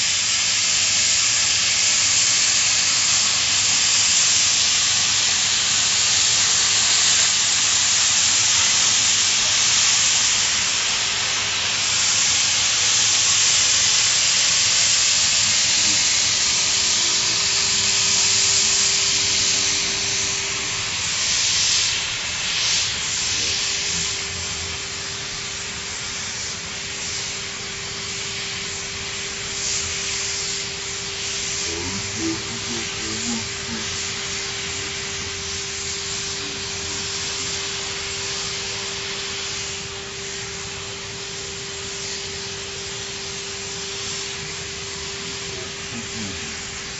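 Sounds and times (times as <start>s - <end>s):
cutting torch hissing: 0.0s - 46.9s.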